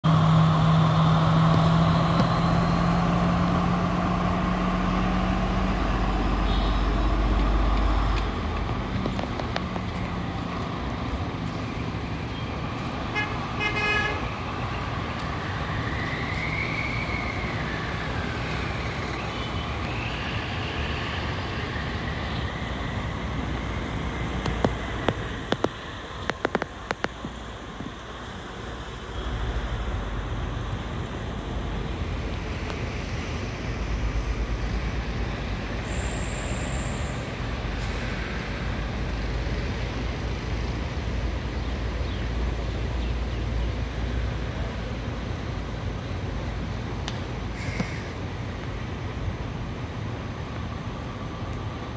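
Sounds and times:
diesel train engine drone: 0:00.0 - 0:51.9
sharp clicks: 0:24.4 - 0:27.2.

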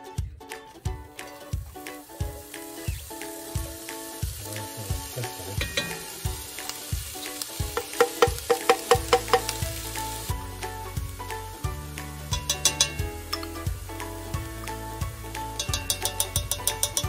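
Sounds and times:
light background music: 0:00.0 - 0:17.0
onion sizzling in hot fat: 0:01.1 - 0:17.0
sharp taps: 0:07.7 - 0:09.6.

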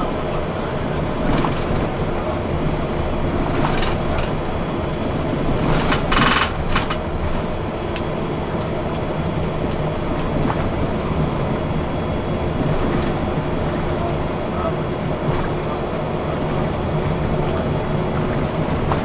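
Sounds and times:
bus engine and road rumble: 0:00.0 - 0:19.0.

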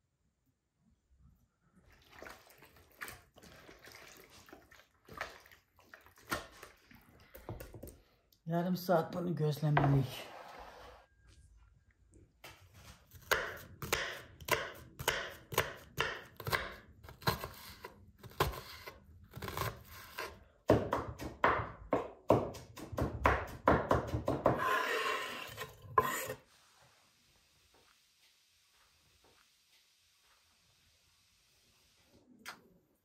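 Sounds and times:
knife chopping on wooden board: 0:13.2 - 0:17.6, 0:18.2 - 0:24.9
knife rasping: 0:24.6 - 0:26.4.

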